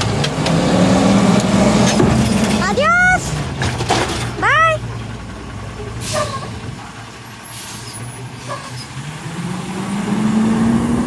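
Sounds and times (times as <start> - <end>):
truck diesel engine: 0.0 - 11.0.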